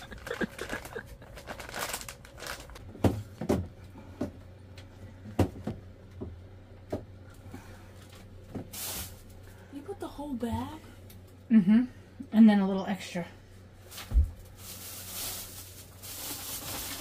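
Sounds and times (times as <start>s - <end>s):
plastic bag rustling: 0.0s - 2.8s, 8.7s - 9.3s, 13.8s - 17.0s.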